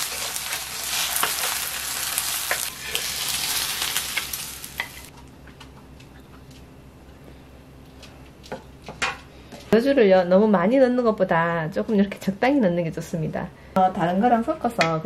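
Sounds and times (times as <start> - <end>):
eggs sizzling in oil: 0.0 - 5.1.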